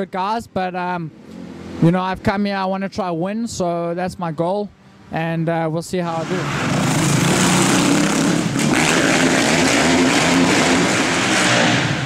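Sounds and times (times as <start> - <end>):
motocross bike engine revving: 6.1 - 12.0.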